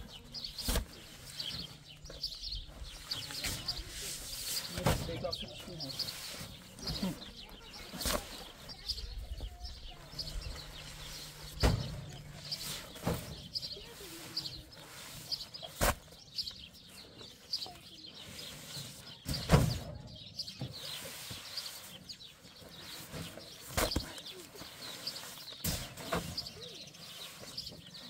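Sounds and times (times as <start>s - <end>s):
small birds chirping: 0.0s - 28.0s
heavy sacks thudding onto truck bed: 11.5s - 12.1s.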